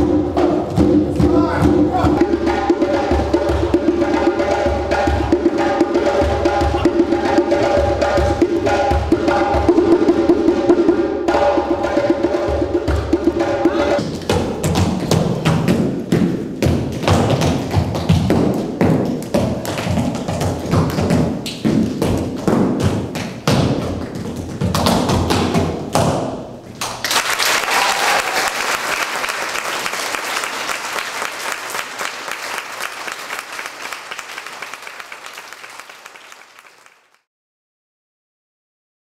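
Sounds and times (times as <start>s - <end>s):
tap dancing feet: 14.0s - 26.3s
group applauding: 26.8s - 37.3s.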